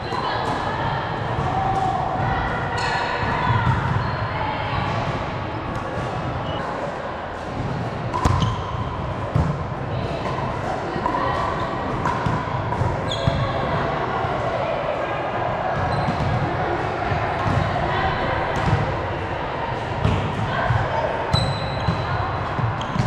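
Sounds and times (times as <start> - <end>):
players' voices: 0.0 - 23.0
volleyball ball contact: 7.4 - 13.7, 19.7 - 23.0.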